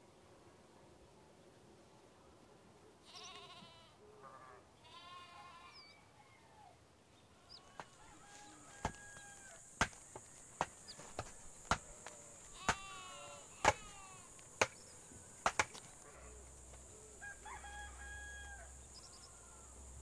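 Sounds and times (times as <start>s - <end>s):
goat bleating: 3.0s - 5.8s, 12.5s - 14.3s
high insect drone: 7.5s - 20.0s.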